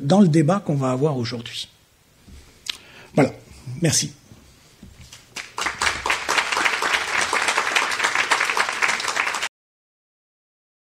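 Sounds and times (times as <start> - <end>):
audience applauding: 5.2 - 9.5.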